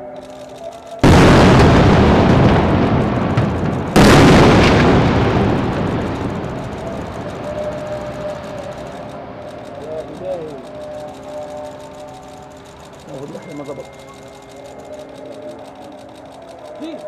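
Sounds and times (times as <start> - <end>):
large explosions: 1.0 - 9.7.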